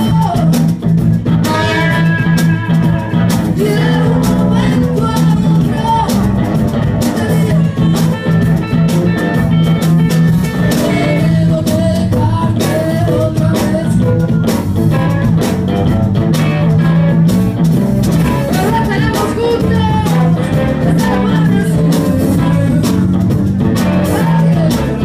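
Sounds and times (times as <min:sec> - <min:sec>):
woman singing into a microphone: 0:00.0 - 0:00.6, 0:01.5 - 0:06.4, 0:07.0 - 0:08.4, 0:10.7 - 0:14.2, 0:18.5 - 0:23.1, 0:23.8 - 0:25.0
electric guitars: 0:00.0 - 0:25.0.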